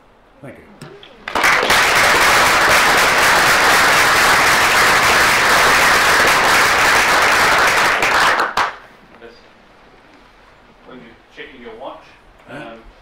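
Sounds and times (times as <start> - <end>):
audience applauding: 1.2 - 8.9.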